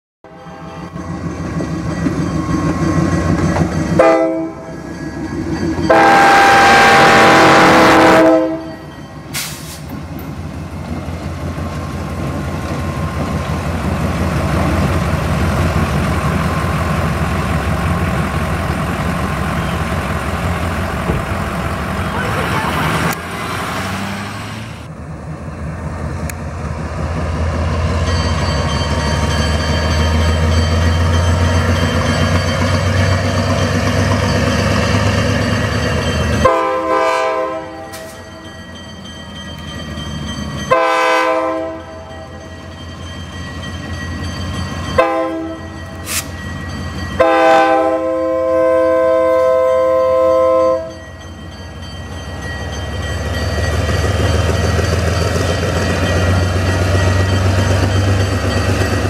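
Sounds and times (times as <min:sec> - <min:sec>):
locomotive air horn blasts: 0:00.3 - 0:01.0, 0:04.0 - 0:04.7, 0:05.9 - 0:08.7, 0:36.4 - 0:38.2, 0:40.7 - 0:42.0, 0:45.0 - 0:46.2, 0:47.2 - 0:50.9
diesel locomotive engine running: 0:00.8 - 0:59.0.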